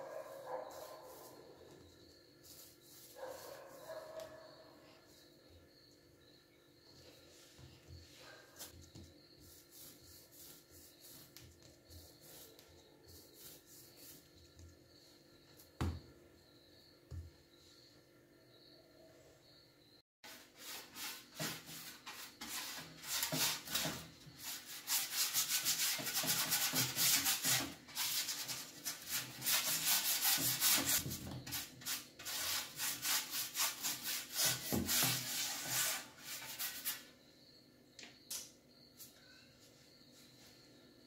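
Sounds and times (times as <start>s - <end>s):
brush rubbing on metal baking tray: 2.4s - 4.0s, 9.4s - 14.3s, 20.3s - 37.1s.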